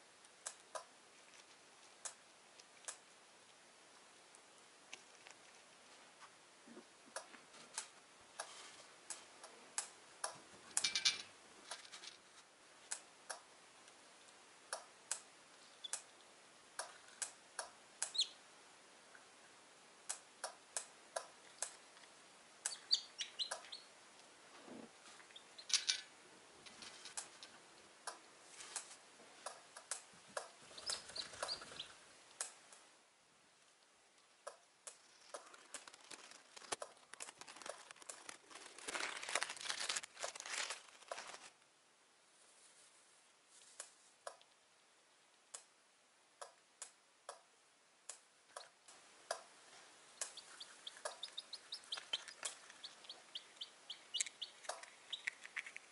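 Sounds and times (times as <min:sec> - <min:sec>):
chicks peeping: 0:18.0 - 0:18.4, 0:22.6 - 0:23.9, 0:30.4 - 0:32.0, 0:50.1 - 0:55.9
beaks pecking eggshells: 0:20.1 - 0:23.9, 0:29.4 - 0:32.8, 0:34.4 - 0:41.5, 0:48.6 - 0:55.9.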